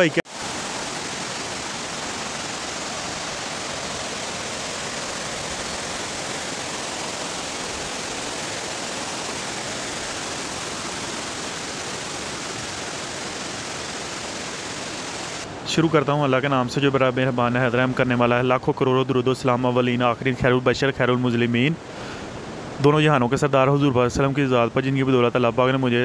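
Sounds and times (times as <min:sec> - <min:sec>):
waterfall rushing: 0:00.0 - 0:15.6.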